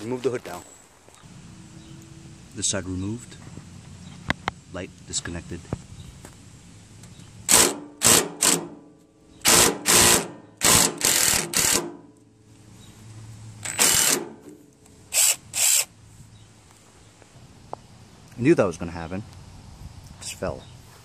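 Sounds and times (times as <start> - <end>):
cordless drill bursts: 7.5 - 8.6, 9.4 - 11.9, 13.6 - 14.3, 15.1 - 15.9.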